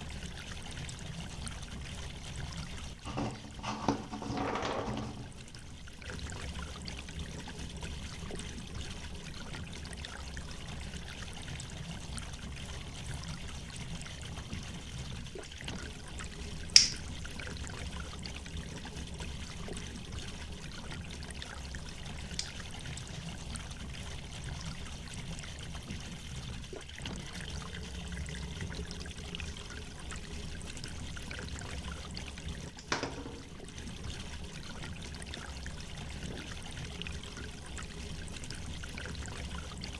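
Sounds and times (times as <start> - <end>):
lighter click: 16.8 - 17.0.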